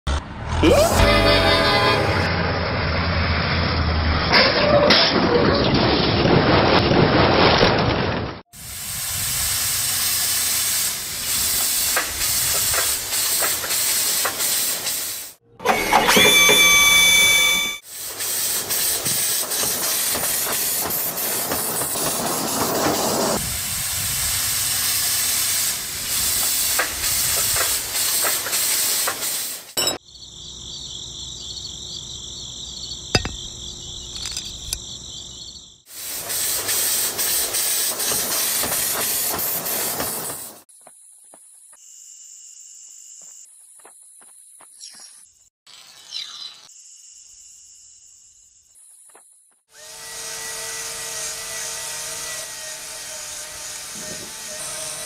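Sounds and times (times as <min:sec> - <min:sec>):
loud steady hissing: 0:08.6 - 0:15.4, 0:23.4 - 0:29.8
high whistle-like tone: 0:15.6 - 0:17.8.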